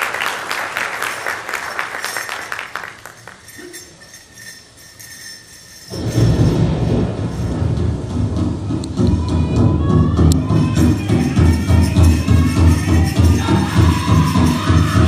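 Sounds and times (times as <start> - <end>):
audience applause: 0.0 - 3.4.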